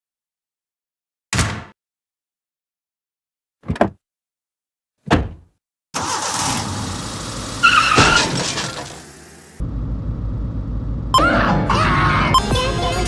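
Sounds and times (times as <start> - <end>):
car engine starting and running: 6.0 - 13.0
short squeal: 7.6 - 8.6
car door shutting: 7.7 - 9.0.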